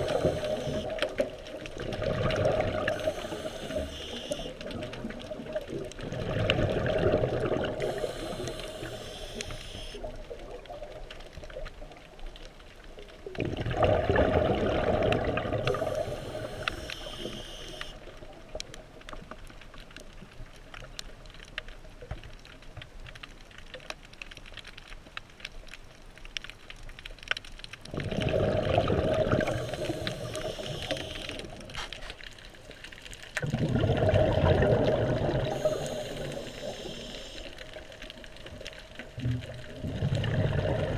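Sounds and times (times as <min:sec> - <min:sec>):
regulator hiss: 0:00.0 - 0:01.0, 0:02.9 - 0:04.6, 0:07.8 - 0:10.1, 0:15.7 - 0:18.0, 0:29.4 - 0:31.6, 0:35.5 - 0:37.6
exhaled bubbles rushing underwater: 0:00.0 - 0:17.4, 0:27.8 - 0:31.8, 0:33.0 - 0:40.9
faint steady crackle: 0:00.0 - 0:40.9.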